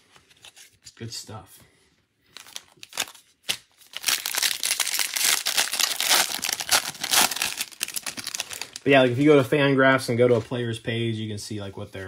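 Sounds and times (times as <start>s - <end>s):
foil wrapper tearing and crinkling: 2.4s - 8.8s.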